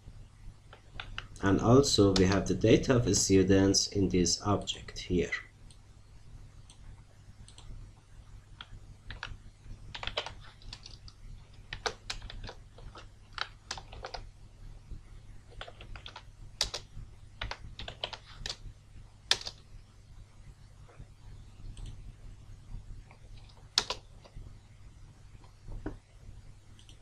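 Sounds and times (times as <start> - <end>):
typing on a keyboard: 8.6 - 14.3, 15.5 - 18.6, 19.3 - 19.6, 23.1 - 24.3.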